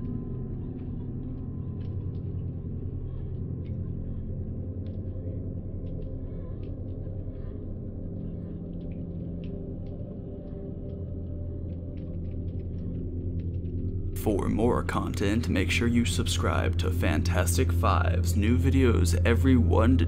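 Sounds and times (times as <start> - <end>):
low droning hum: 0.0 - 20.0.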